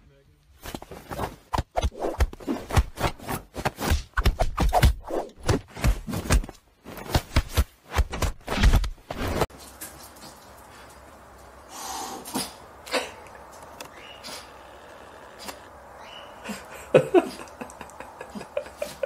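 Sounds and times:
animals scuffling and thumping: 0:05.5 - 0:11.7.

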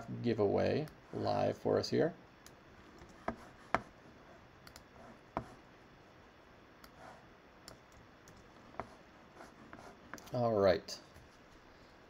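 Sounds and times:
faint mouse and keyboard clicks: 0:04.6 - 0:04.9.

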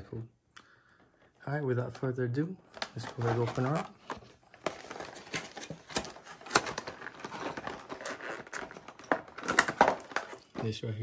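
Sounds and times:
plastic packaging crackling: 0:02.7 - 0:11.0.

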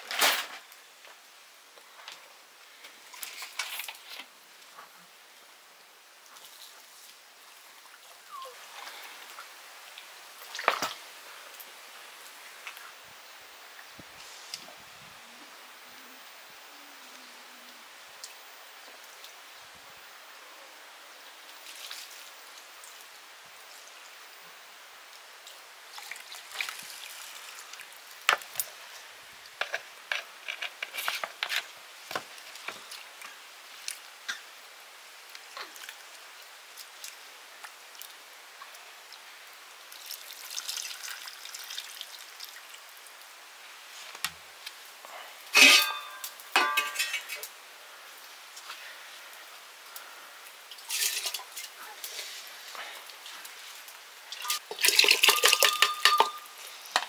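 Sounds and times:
metal pots and utensils clinking: 0:45.6 - 0:47.5, 0:50.9 - 0:51.7, 0:54.4 - 0:57.0
metal vessel clanking: 0:45.6 - 0:47.5, 0:54.9 - 0:57.0.

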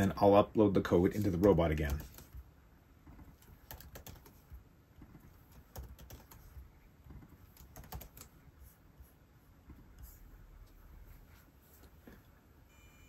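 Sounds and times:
keystrokes on computer keyboard: 0:01.2 - 0:02.4, 0:03.1 - 0:08.4.

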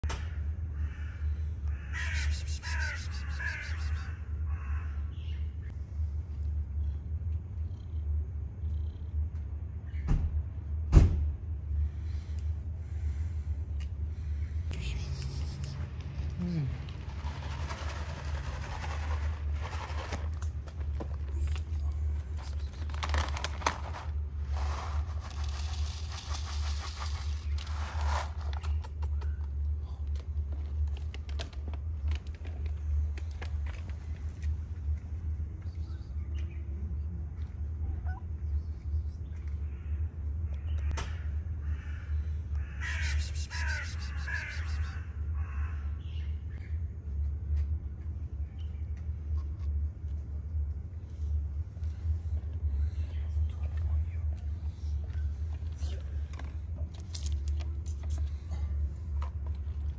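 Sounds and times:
low hum: 0:00.1 - 0:59.9
crow cawing: 0:00.2 - 0:05.2, 0:41.0 - 0:46.0
steady low rumble: 0:00.2 - 0:59.9
plastic bag crinkling: 0:22.2 - 0:28.6.

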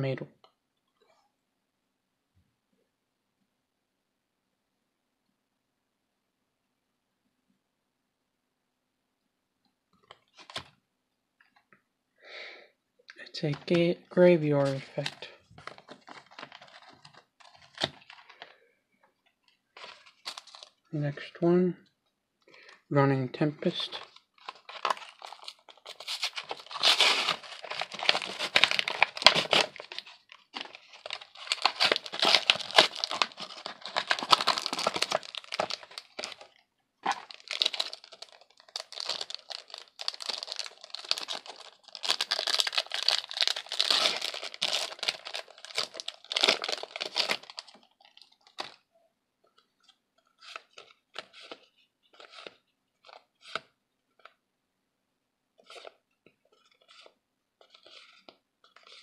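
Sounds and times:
soft card rustles: 0:13.2 - 0:18.6, 0:19.2 - 0:20.8, 0:23.6 - 0:48.8, 0:49.5 - 0:54.4, 0:55.6 - 0:59.0
foil wrapper crinkling: 0:14.6 - 0:18.5, 0:19.8 - 0:20.8, 0:23.9 - 0:48.8.

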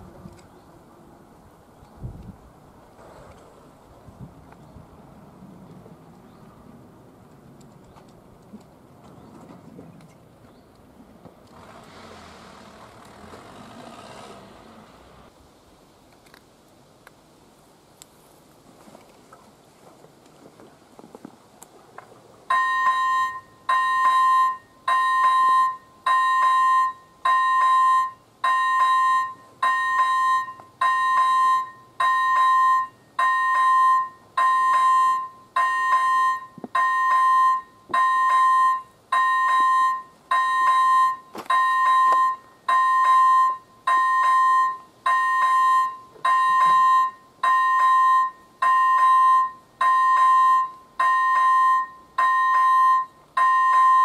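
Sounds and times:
level crossing warning bell: 0:22.5 - 0:54.0.

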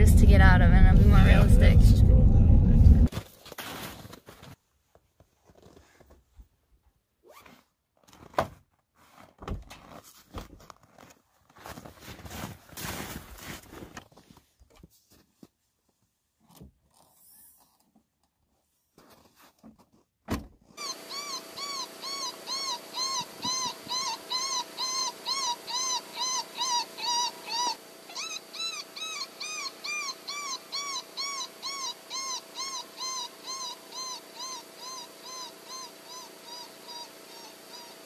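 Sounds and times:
steady hum: 0:00.0 - 0:03.1
electronic whining yelps: 0:20.8 - 0:38.0.

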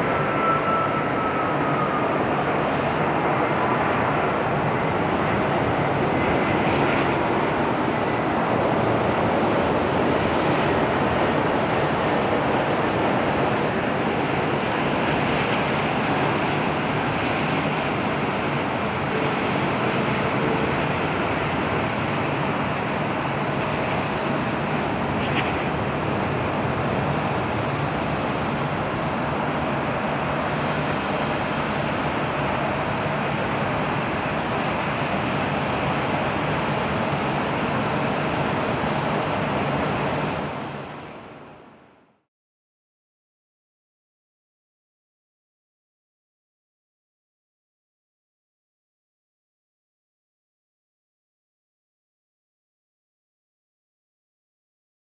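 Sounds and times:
jet engine noise: 0:00.0 - 0:42.0
faint engine whine: 0:00.0 - 0:42.1.

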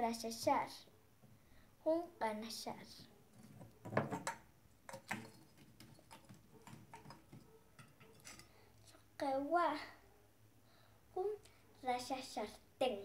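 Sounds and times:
pottery knocking and clunking: 0:03.4 - 0:08.5.

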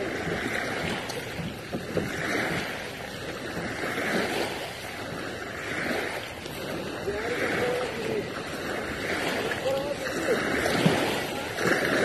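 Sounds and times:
waves washing onto pebbles: 0:00.0 - 0:12.0
wind on microphone: 0:00.0 - 0:12.0.

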